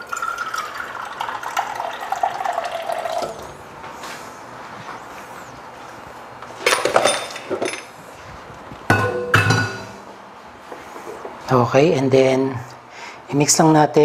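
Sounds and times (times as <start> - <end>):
glassware and utensils clinking: 6.6 - 7.9, 8.9 - 10.0.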